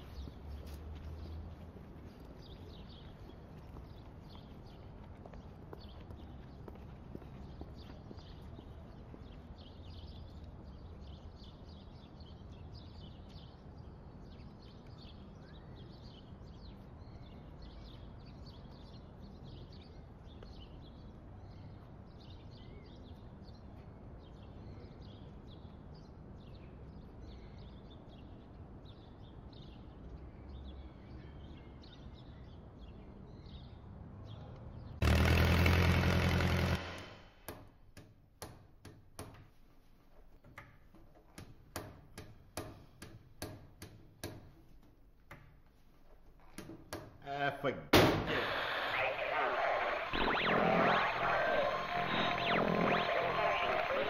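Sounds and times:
loud buzz with hiss: 48.0 - 54.0.

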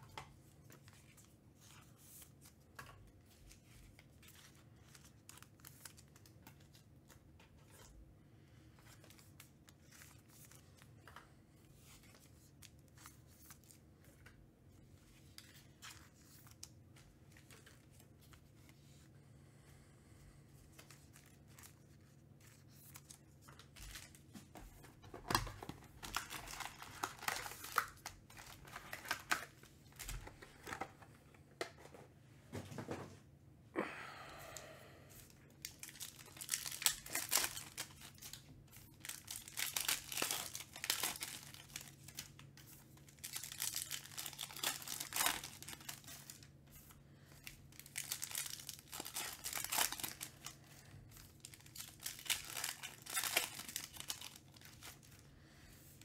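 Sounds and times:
foil packs crinkling: 20.8 - 31.0, 35.6 - 46.8, 47.4 - 55.3.

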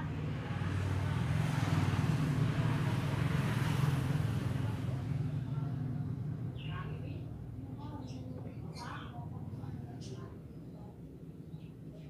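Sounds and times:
vehicle engine passing: 0.0 - 5.4.

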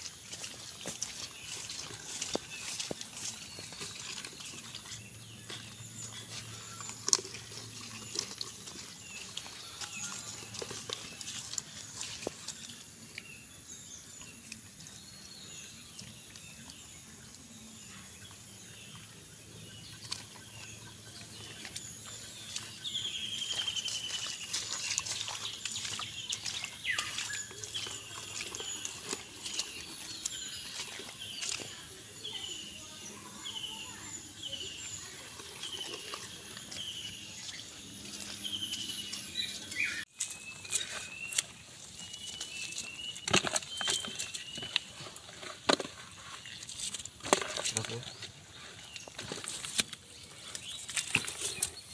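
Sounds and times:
footsteps splashing through puddles: 0.0 - 13.0, 19.9 - 33.8, 34.4 - 51.9
clicks and rustles: 35.0 - 51.9.

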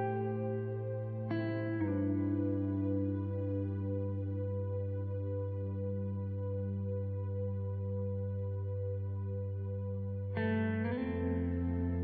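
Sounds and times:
slow calm instrumental music: 0.0 - 12.0.

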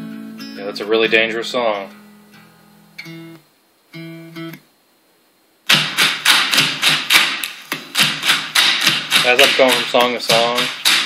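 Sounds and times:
guitar notes: 0.0 - 4.6
song with fast sharp beat: 5.7 - 11.0.

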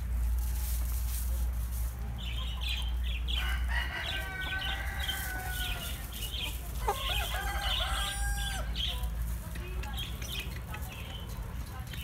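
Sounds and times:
hens clucking: 0.3 - 12.0
rooster crowing: 3.4 - 6.0, 6.8 - 8.7.

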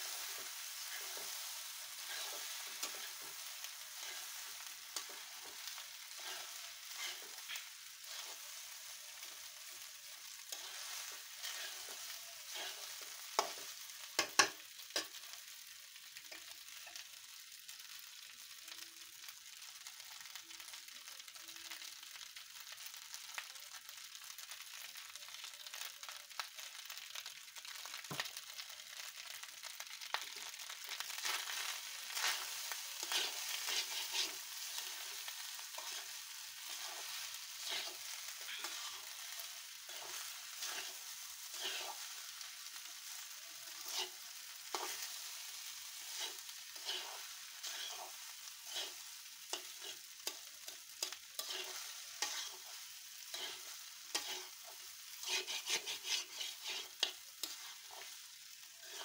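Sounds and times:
rice sizzling in oil: 0.0 - 59.0
metal spatula scraping pan: 2.0 - 4.3, 4.9 - 8.4, 10.4 - 15.1, 31.2 - 42.1, 43.7 - 45.2, 46.0 - 50.4, 51.0 - 58.1, 58.8 - 59.0.

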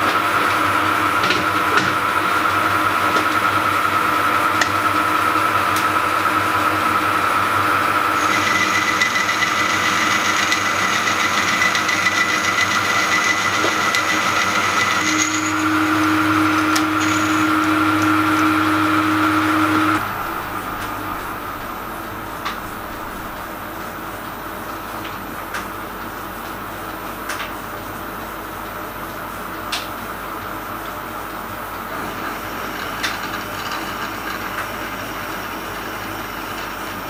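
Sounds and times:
high-pitched whine: 0.0 - 26.7
metal lathe running: 0.0 - 28.6, 30.3 - 37.0
low steady hum: 14.9 - 26.5.

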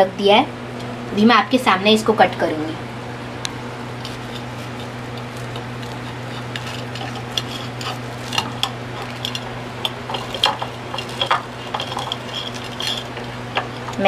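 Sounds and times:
steady low hum: 0.0 - 14.0
knife sawing crisp bread: 4.1 - 8.4.

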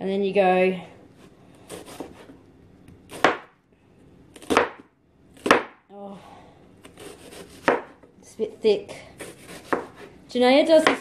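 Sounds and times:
knife slicing onion: 1.2 - 2.4, 3.0 - 3.6, 4.3 - 5.8, 6.8 - 8.1, 9.0 - 11.0
knife chopping on cutting board: 1.7 - 2.4, 3.1 - 3.5, 4.4 - 5.8, 6.8 - 8.0, 9.2 - 10.1, 10.8 - 11.0.

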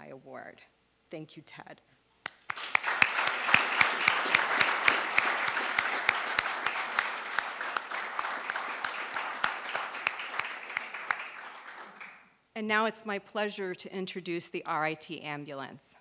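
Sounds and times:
sharp close hand claps: 2.2 - 12.3
audience applause: 2.5 - 12.3.

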